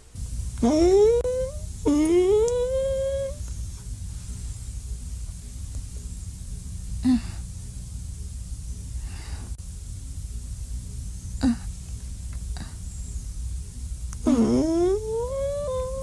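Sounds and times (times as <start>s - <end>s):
steady low hum: 0.0s - 16.0s
wordless vocal moans rising in pitch: 0.6s - 3.4s, 14.3s - 16.0s
soft breath-like sound: 9.0s - 9.6s.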